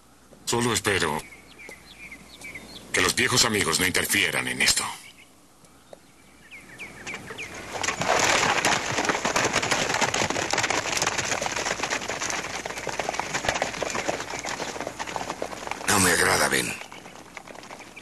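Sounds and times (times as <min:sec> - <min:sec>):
bird chirps: 0:00.9 - 0:03.9, 0:04.6 - 0:08.0, 0:12.6 - 0:15.2, 0:15.8 - 0:18.0
horse hoofbeats clattering: 0:07.0 - 0:18.0.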